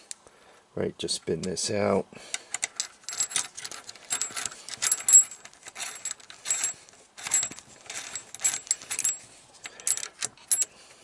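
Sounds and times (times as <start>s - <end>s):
metal engine parts clinking and rattling: 2.5s - 10.7s.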